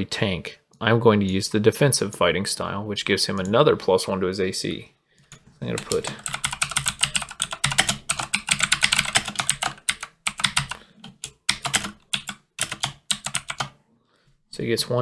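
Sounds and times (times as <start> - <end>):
typing on computer keyboard: 5.3 - 13.7.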